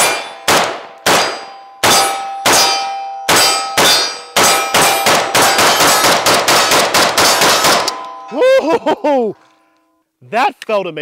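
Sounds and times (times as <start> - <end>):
rifle shots: 0.0 - 8.0
steel targets clanging: 0.0 - 8.4.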